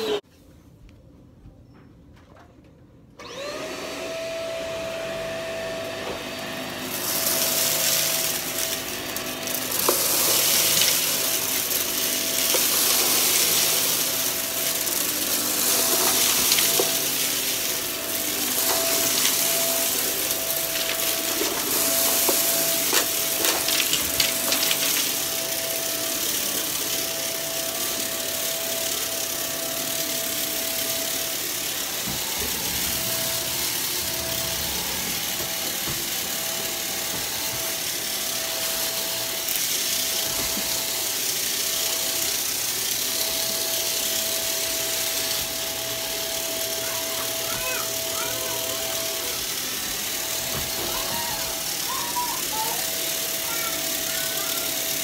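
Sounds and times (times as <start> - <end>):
vacuum cleaner motor whine: 0.0 - 0.3, 3.2 - 55.0
brushroll on carpet: 4.9 - 52.5
debris clicks and crackles: 18.5 - 25.2.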